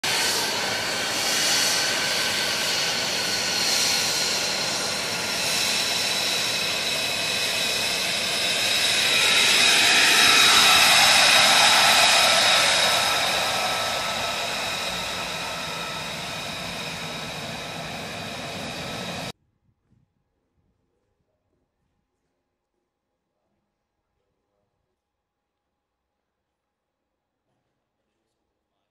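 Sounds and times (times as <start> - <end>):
jet engine whine: 0.0 - 19.3
rushing jet noise: 0.0 - 19.3.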